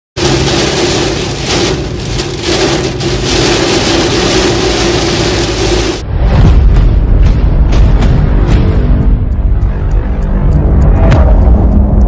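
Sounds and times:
heavy rain on car roof: 0:00.2 - 0:06.0.

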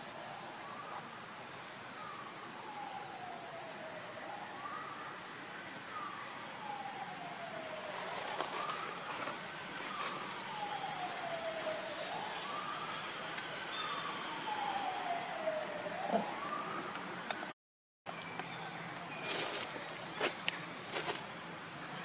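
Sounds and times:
distant siren wailing: 0:02.6 - 0:05.1, 0:06.0 - 0:17.0.

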